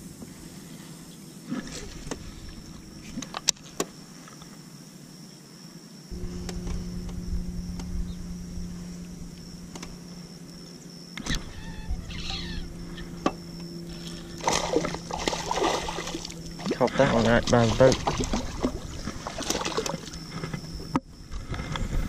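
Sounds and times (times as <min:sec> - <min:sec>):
electric trolling motor humming: 0:01.4 - 0:03.8, 0:06.1 - 0:22.0.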